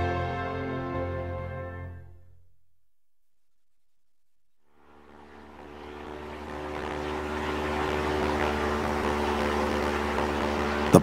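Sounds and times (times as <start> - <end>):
propeller aircraft engines droning: 4.7 - 11.0.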